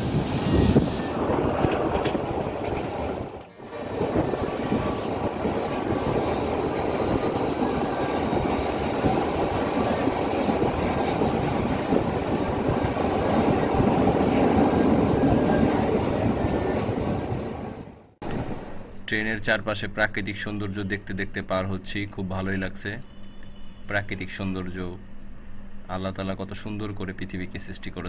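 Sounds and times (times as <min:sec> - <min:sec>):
train wheels rumbling on rails: 0:00.0 - 0:18.8.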